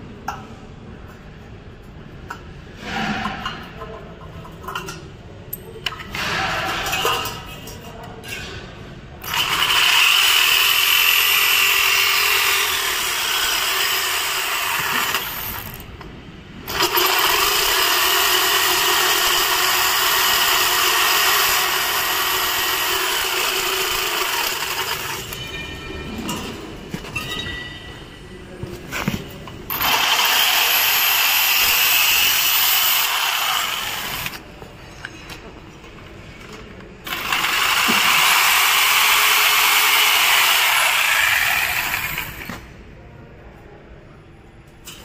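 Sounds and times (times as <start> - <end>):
jigsaw cutting metal: 9.2 - 15.8, 16.7 - 25.3, 29.7 - 34.4, 37.1 - 42.6
knocks and clinks: 25.0 - 28.2.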